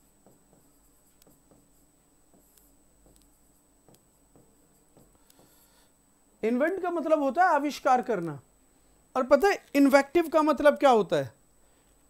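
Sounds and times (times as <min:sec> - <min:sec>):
pen writing taps and scratches: 0:00.0 - 0:05.6
faint high-pitched whine: 0:00.0 - 0:12.0.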